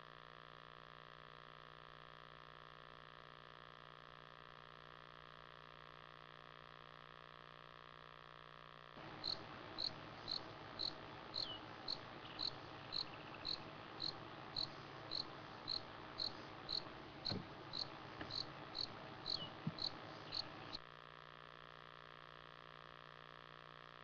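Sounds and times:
insect chirping: 9.0 - 20.8.

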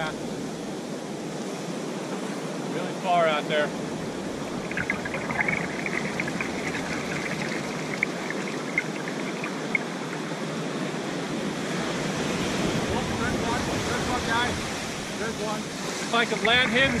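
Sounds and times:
ocean surf: 0.0 - 17.0
water swirling around waders: 3.3 - 17.0
small ticks and clicks: 4.7 - 10.3.

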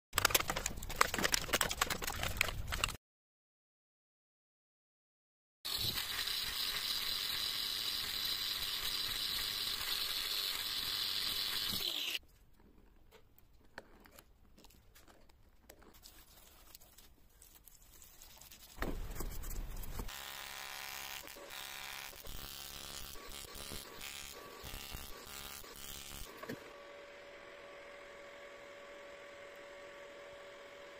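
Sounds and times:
welding arc buzzing: 5.7 - 12.2, 19.6 - 26.6.

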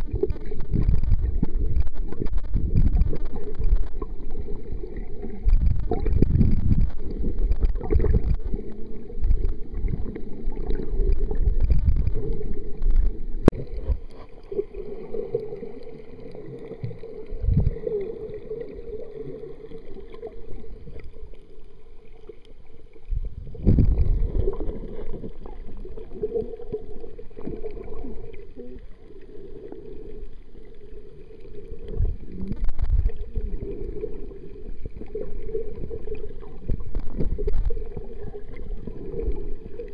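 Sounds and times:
muffled underwater water noise: 0.0 - 39.9.

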